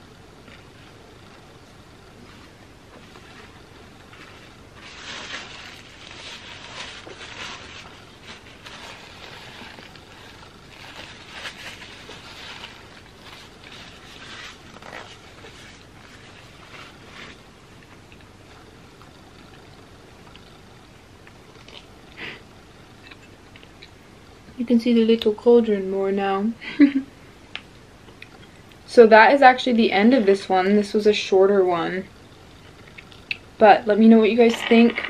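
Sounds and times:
chewing and mouth noises: 17.8 - 22.2, 32.3 - 33.5.

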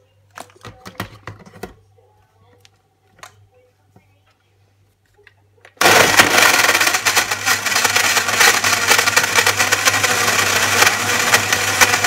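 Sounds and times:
blender motor whirring: 5.8 - 12.0.

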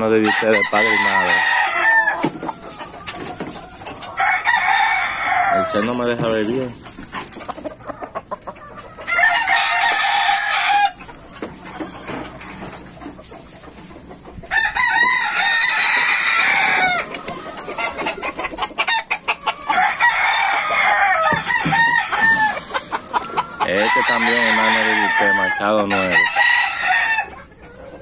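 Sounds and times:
rooster clucking: 0.0 - 28.0
rooster crowing: 0.2 - 5.8, 9.0 - 11.0, 14.5 - 17.1, 19.6 - 22.7, 23.6 - 27.4.

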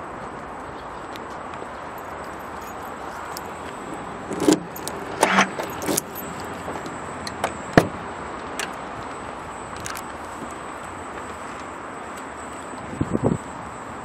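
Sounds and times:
keys jangling: 2.0 - 6.7.

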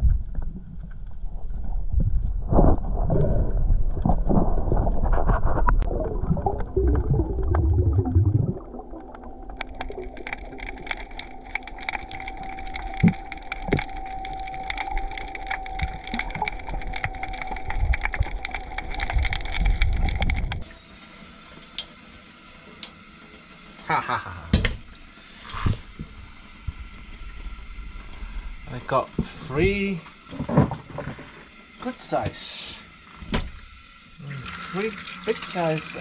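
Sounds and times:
underwater rumble and bubbles: 0.0 - 20.7, 24.5 - 32.2
faint steady hum: 0.0 - 36.0
underwater crackling clicks: 9.0 - 20.6
background hiss: 20.7 - 36.0.

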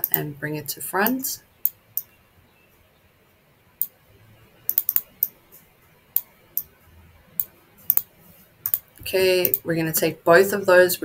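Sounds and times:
computer mouse clicking: 1.6 - 2.2, 4.7 - 5.4, 7.4 - 9.6.

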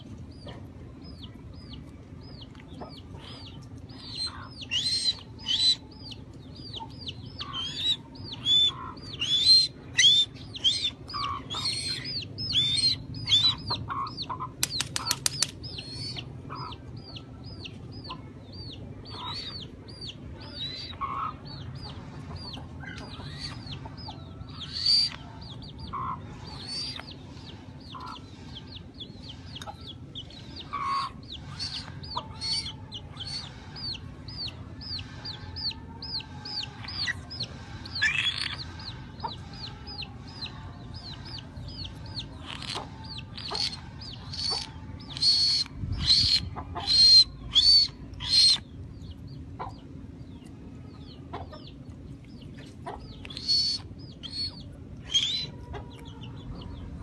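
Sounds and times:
chicks peeping: 0.0 - 57.0.

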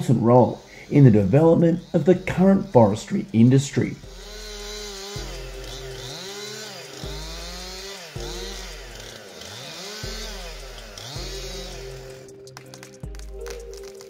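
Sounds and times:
chainsaw cutting wood: 0.0 - 14.0.

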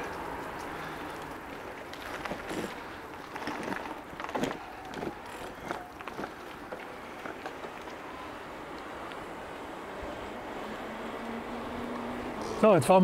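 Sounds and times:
bike knocking and rattling: 1.0 - 8.0.

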